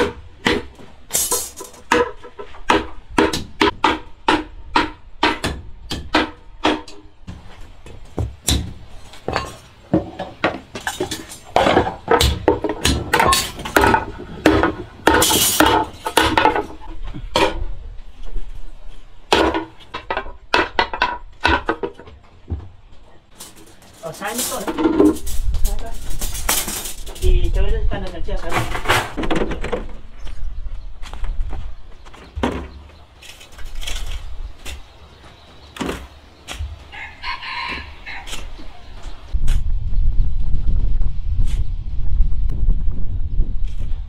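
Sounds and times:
knocks and clinks of hard objects: 0.0s - 17.7s, 23.3s - 27.5s.

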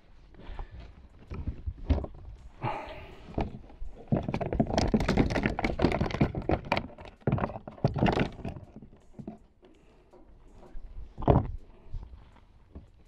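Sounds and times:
fish thrashing against plastic kayak: 3.2s - 9.4s.

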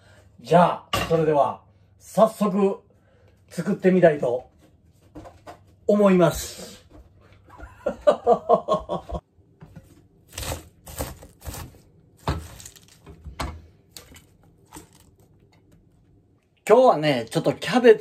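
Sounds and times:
cabbage crunching and rustling: 10.2s - 13.2s.

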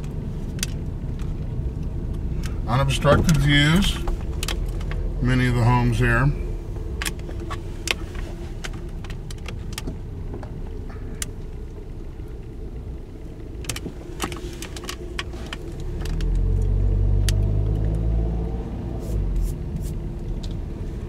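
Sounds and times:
car engine rumble: 0.0s - 21.0s
road noise inside car: 0.0s - 21.0s
small clicks and rattles: 6.9s - 12.6s, 13.4s - 18.0s.

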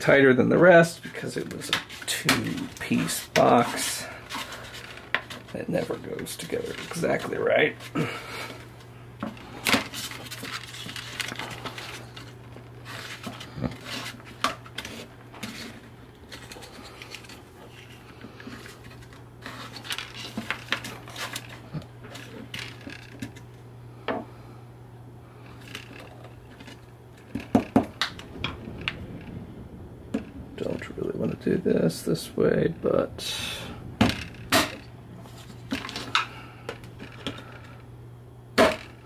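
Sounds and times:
steady low hum: 0.0s - 39.0s
plastic parts clicking and scraping: 1.0s - 7.9s, 8.5s - 23.5s, 25.4s - 29.4s, 34.0s - 37.8s.

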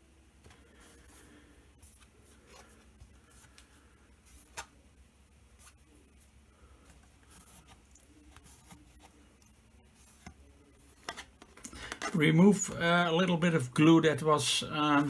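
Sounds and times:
tabletop handling rustles: 5.5s - 12.2s.

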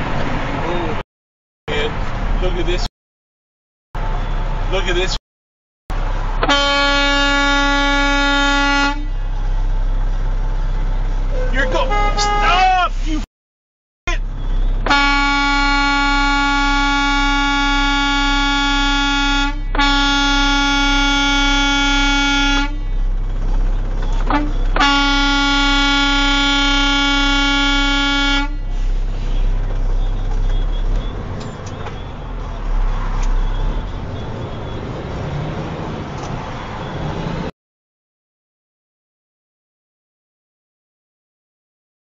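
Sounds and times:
low engine hum: 5.9s - 13.2s, 14.1s - 37.5s
truck horn blasts: 6.4s - 9.4s, 11.2s - 12.8s, 14.3s - 23.2s, 24.0s - 35.4s.

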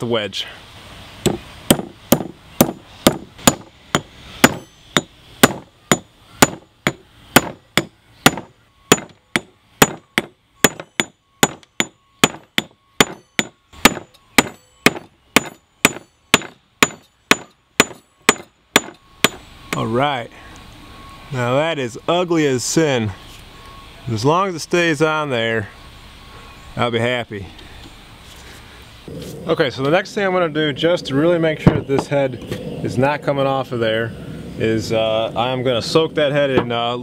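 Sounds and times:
hammer striking steel wedge: 1.2s - 19.8s.

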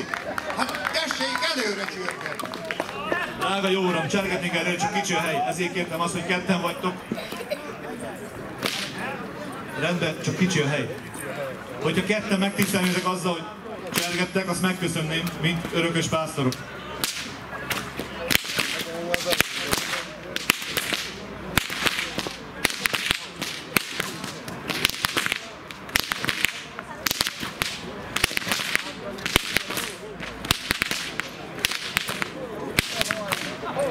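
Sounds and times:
whip cracks: 8.6s - 9.0s, 12.6s - 13.1s, 14.0s - 14.3s, 17.0s - 33.6s.

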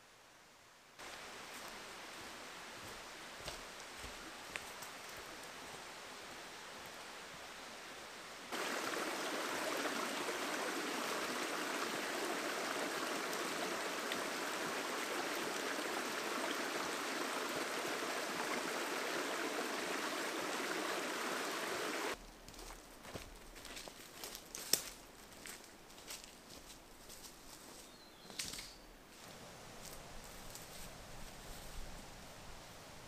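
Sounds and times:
stream running over stones: 1.0s - 22.2s.

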